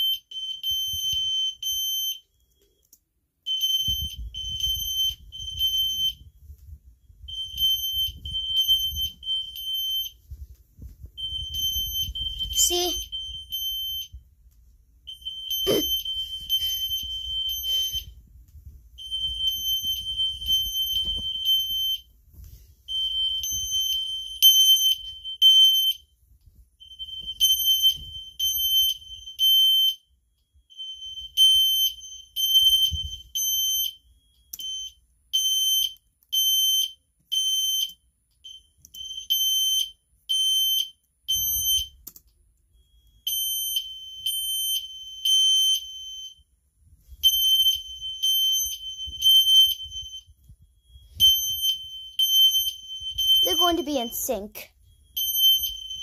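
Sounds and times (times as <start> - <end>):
fire alarm horns pulsing: 15.1 - 18.2, 51.1 - 54.3, 55.0 - 56.0.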